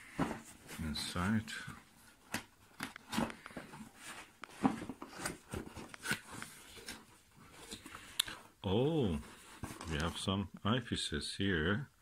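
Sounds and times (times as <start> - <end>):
cardboard scraping and knocking: 2.3 - 7.1.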